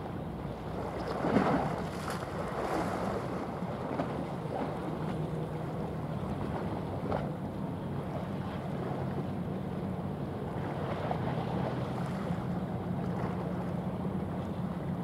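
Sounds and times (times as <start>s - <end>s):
rush of water from ship wash: 1.0s - 7.4s.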